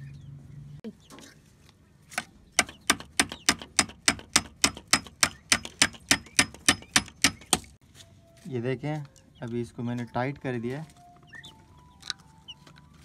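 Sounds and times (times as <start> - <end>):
sharp evenly spaced clicks: 2.6 - 7.8.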